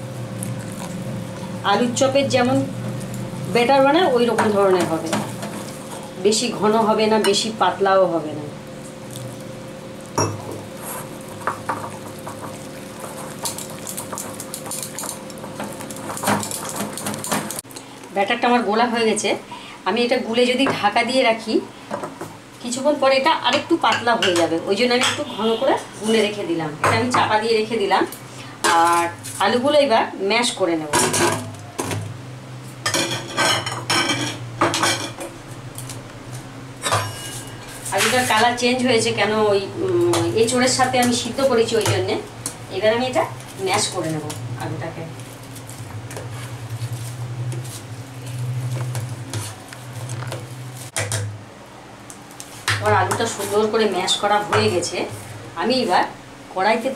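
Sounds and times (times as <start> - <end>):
steady low hum: 0.0 - 56.9
wire whisk beating batter in bowl: 10.2 - 17.6.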